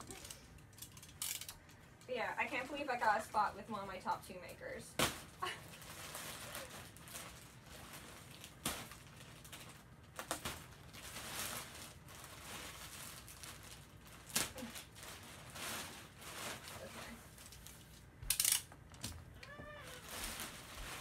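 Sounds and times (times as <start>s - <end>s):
plastic and cardboard rustling: 5.0s - 18.2s, 19.0s - 21.0s.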